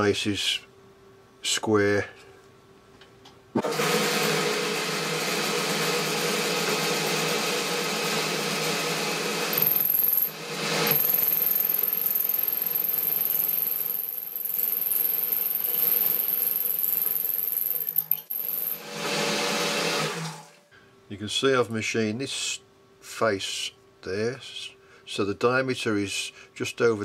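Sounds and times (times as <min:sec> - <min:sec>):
lathe motor hum: 0:03.6 - 0:20.5.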